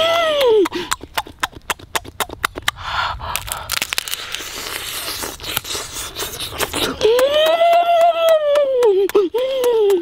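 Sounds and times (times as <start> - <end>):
crab shell cracking: 0.9 - 6.8.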